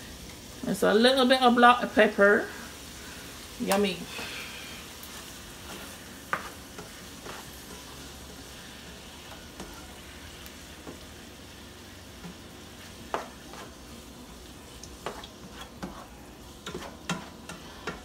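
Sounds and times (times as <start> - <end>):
vegetables sizzling in frying pan: 0.0 - 18.0.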